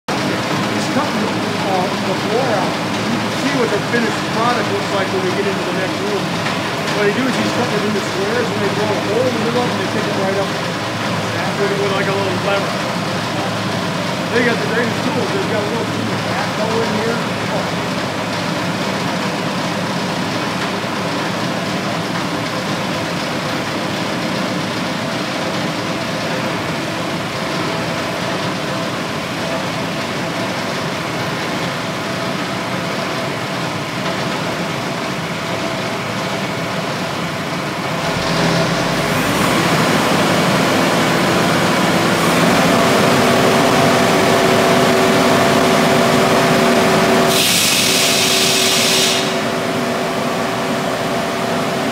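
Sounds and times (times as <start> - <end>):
steady whine: 0.1 - 51.9
concrete saw cutting: 38.0 - 49.6.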